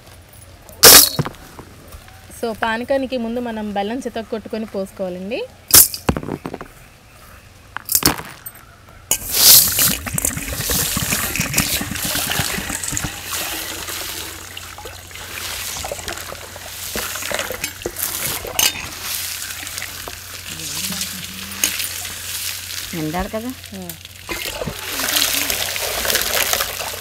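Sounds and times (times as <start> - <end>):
water pouring and splashing: 9.1 - 27.0
hand stirring in water: 9.2 - 22.9, 24.0 - 27.0.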